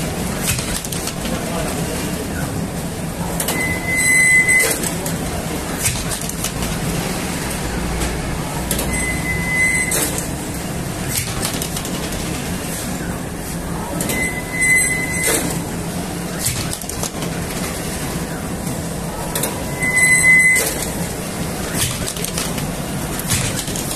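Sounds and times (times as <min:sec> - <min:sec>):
short high squeal: 0:03.5 - 0:04.8, 0:08.9 - 0:10.2, 0:14.1 - 0:15.5, 0:19.7 - 0:20.9.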